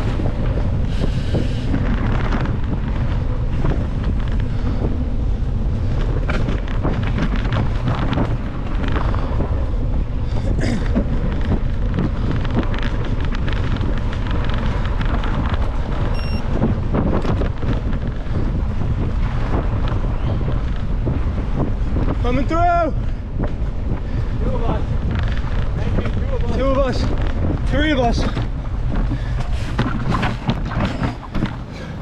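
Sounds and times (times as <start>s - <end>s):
bike clicks and rattles: 0.0s - 32.0s
wind buffeting microphone: 0.0s - 32.0s.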